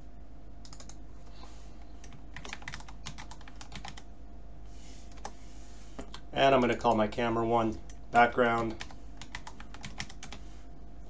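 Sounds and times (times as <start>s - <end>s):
computer keyboard typing: 0.6s - 1.0s, 2.0s - 4.1s, 5.1s - 5.3s, 8.5s - 10.4s.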